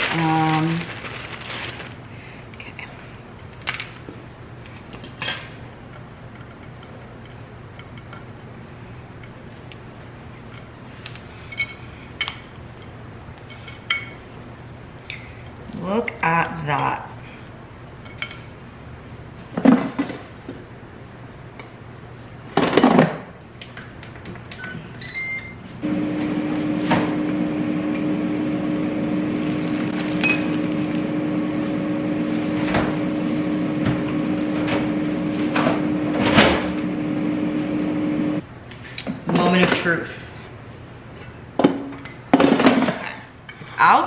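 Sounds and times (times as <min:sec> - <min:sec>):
appliance fan humming: 0:00.0 - 0:04.6, 0:23.4 - 0:41.0
appliance beeps: 0:24.6 - 0:38.4.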